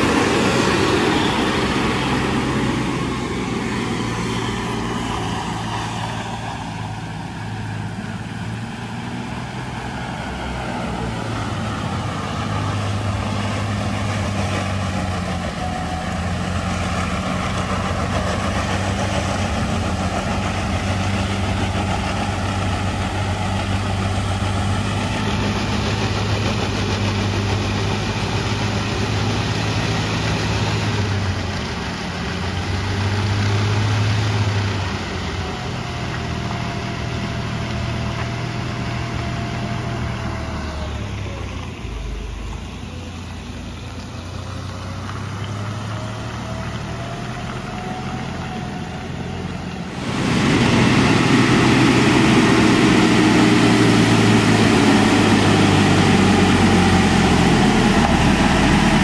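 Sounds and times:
lorry diesel engine under load: 0:00.0 - 0:59.0.

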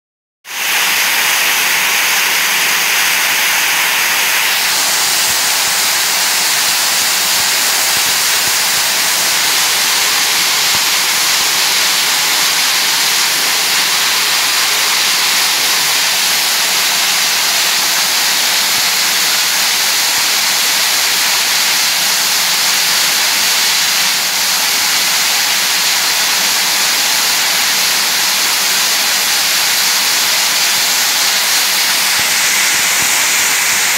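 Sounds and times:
tape rewinding machine hissing: 0:00.7 - 0:19.2, 0:27.7 - 0:33.9.

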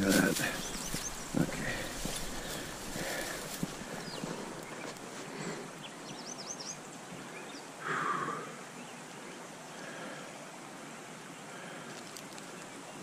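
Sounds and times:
stream water rushing: 0:06.8 - 0:13.0.

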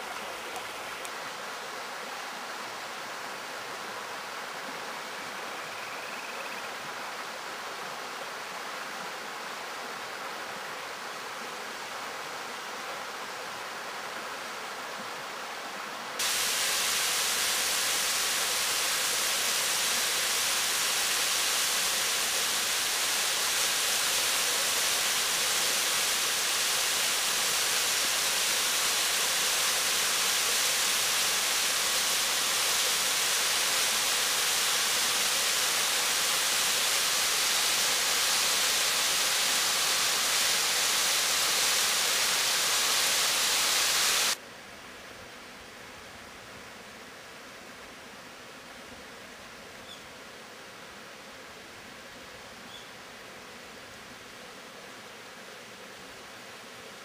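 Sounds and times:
waterfall rushing into pool: 0:00.0 - 0:05.2, 0:16.1 - 0:44.4.

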